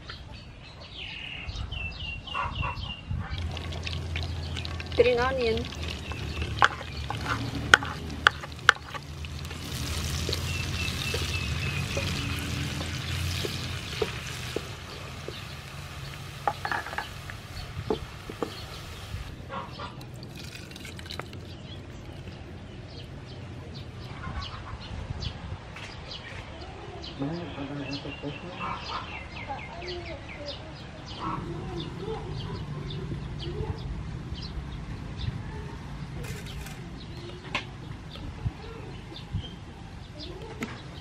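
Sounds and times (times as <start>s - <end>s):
onions sizzling in oil: 3.4s - 19.4s.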